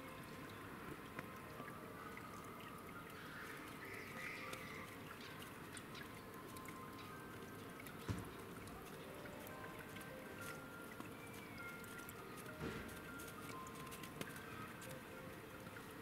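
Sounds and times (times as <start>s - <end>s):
faint outdoor background noise: 0.0s - 16.0s
light ticks: 7.8s - 15.8s.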